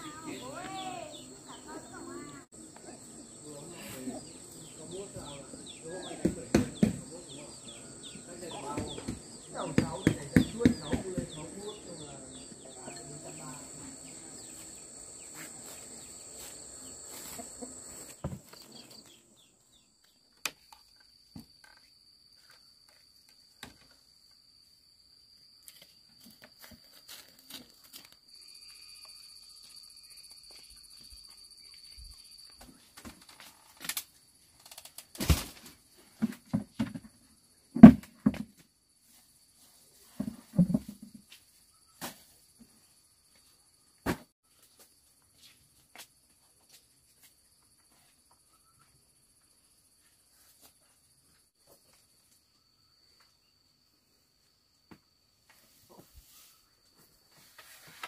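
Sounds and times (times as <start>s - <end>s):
insects trilling: 0.0s - 44.0s, 44.6s - 58.0s
knocks and thumps of objects: 6.1s - 7.2s, 8.5s - 11.7s, 36.2s - 38.6s, 40.2s - 41.2s.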